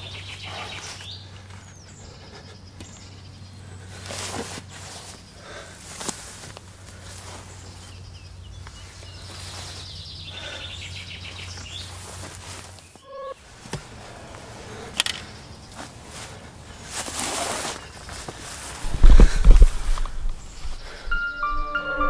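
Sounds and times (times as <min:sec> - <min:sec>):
short pitched call: 0:13.0 - 0:13.4.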